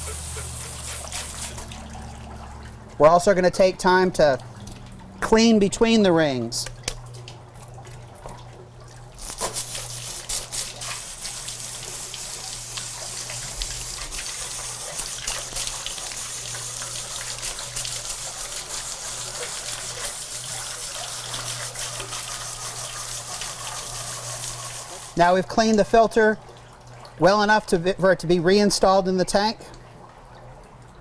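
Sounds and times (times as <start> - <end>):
hose spraying water: 0.0 - 1.9, 9.2 - 25.6
water splashing into tank: 0.0 - 31.0.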